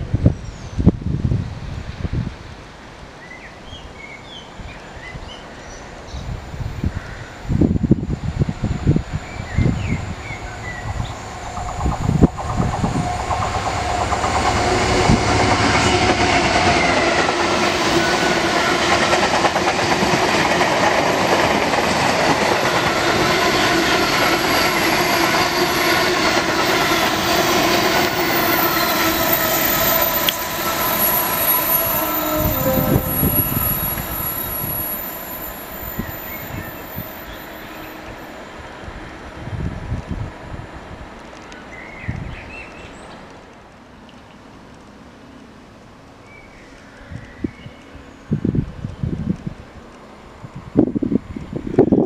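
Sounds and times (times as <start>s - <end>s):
train wheels rushing on rail: 6.4s - 46.2s
locomotive low rumble: 8.7s - 17.6s
whining wheel squeal: 24.0s - 37.4s.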